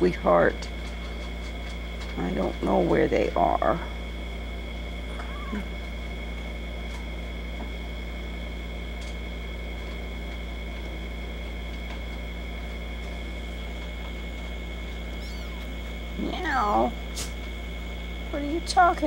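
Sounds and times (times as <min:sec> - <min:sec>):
steady low hum: 0:00.0 - 0:19.0
faint high-pitched whines: 0:14.8 - 0:17.1.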